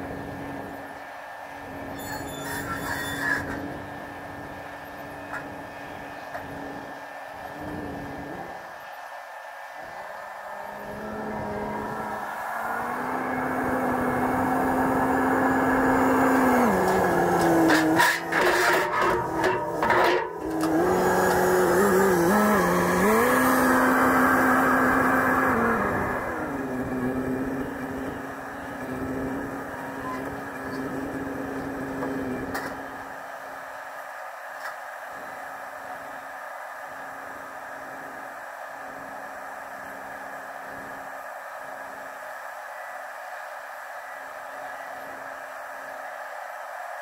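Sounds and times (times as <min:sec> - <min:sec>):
diesel engine revving: 0:00.0 - 0:08.7, 0:10.4 - 0:33.2.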